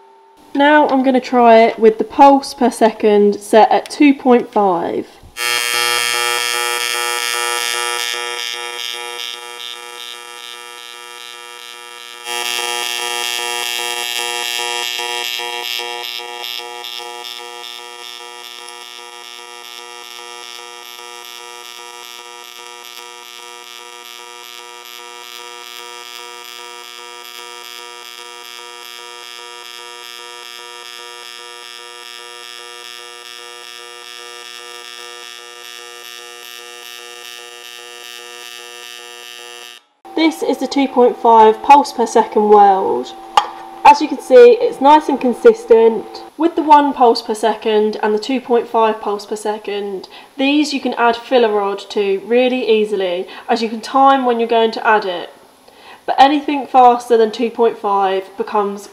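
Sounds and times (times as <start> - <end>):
welding arc pulsing buzz: 5.2 - 49.7.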